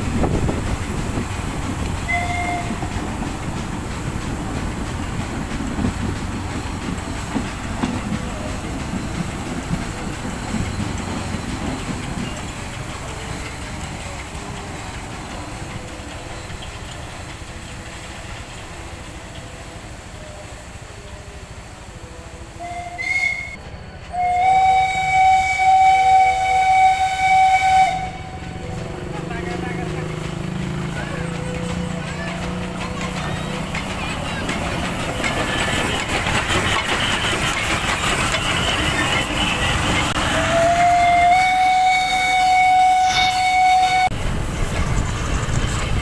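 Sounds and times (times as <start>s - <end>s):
train rumbling: 0.0s - 46.0s
steam whistle blasts: 2.1s - 2.9s, 20.0s - 28.7s, 38.6s - 44.2s.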